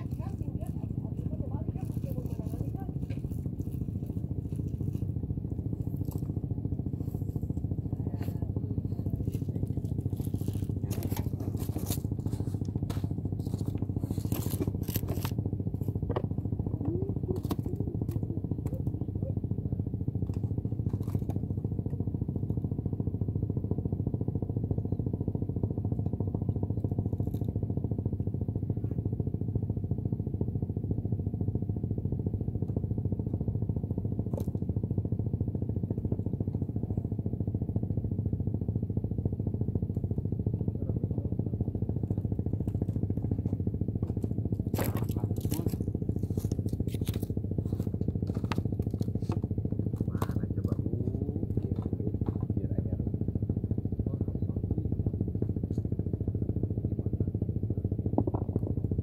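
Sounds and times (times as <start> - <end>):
low engine drone: 0.0 - 59.0.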